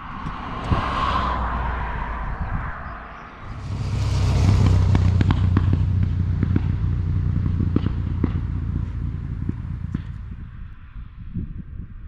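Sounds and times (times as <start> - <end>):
motorcycle engine rumble: 3.4 - 10.9
exhaust pops and crackles: 3.5 - 10.5.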